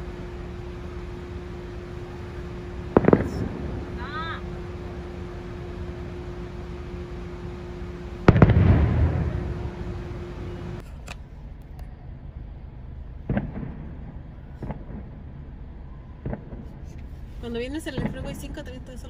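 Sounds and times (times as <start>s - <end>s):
firework boom with rumble: 2.7s - 5.6s, 8.2s - 10.8s, 13.2s - 16.9s
faint firework pops: 3.0s - 3.8s, 8.3s - 9.4s, 13.2s - 15.2s, 16.2s - 17.1s.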